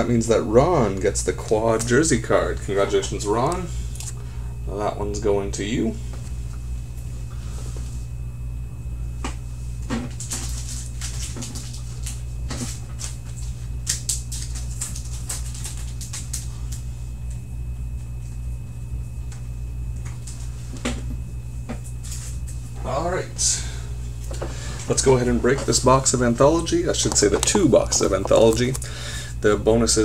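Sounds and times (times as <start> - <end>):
steady low hum: 0.0 - 30.0
handling clicks and rustles: 26.9 - 28.8.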